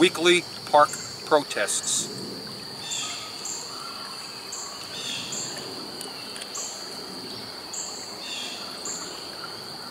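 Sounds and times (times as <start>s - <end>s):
high-pitched insect trill: 0.0s - 9.9s
insect chirps: 0.0s - 9.9s
shallow stream flowing: 2.4s - 9.9s.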